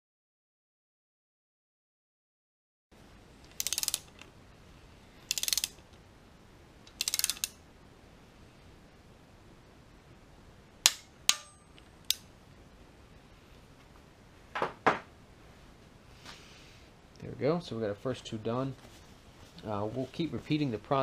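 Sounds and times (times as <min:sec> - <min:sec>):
sharp metallic clicks: 0:03.4 - 0:04.3, 0:05.3 - 0:06.0, 0:06.9 - 0:07.6, 0:10.8 - 0:12.3
torque wrench ratcheting: 0:03.5 - 0:04.3, 0:05.3 - 0:05.8, 0:06.9 - 0:07.6.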